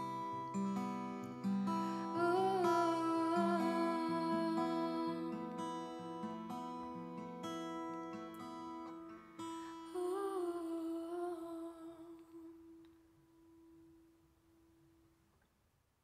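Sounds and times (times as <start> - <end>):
acoustic guitar chord ringing: 0.0 - 12.0
person humming: 2.2 - 5.4, 9.9 - 12.7.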